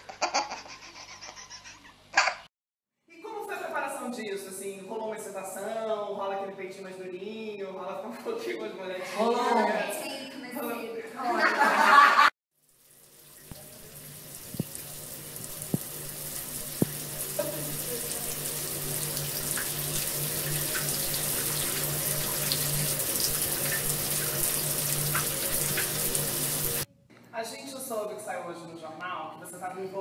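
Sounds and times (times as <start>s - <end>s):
water running from a tap: 12.6s - 26.9s.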